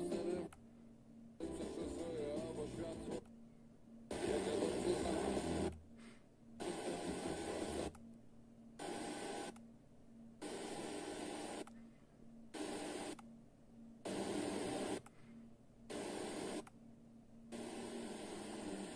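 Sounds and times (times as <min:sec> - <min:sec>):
radio static hiss: 0:04.1 - 0:05.7, 0:06.6 - 0:08.0, 0:14.1 - 0:15.0, 0:15.9 - 0:16.6, 0:17.5 - 0:18.9.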